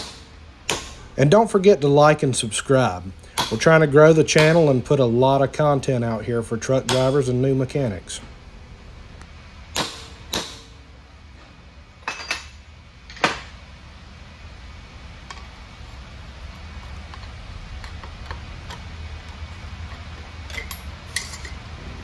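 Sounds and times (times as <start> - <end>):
hammer striking steel: 6.8 - 7.3.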